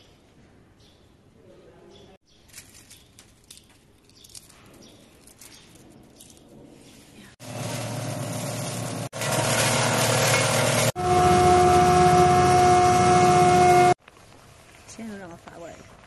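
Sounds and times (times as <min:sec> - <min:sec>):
crusher breaking dried onion: 0:02.4 - 0:06.5
grinding mill whining: 0:07.4 - 0:14.0.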